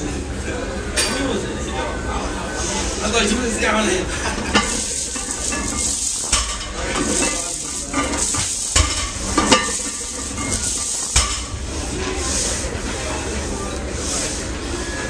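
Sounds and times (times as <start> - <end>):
chains rattling and clinking: 4.5 - 11.5.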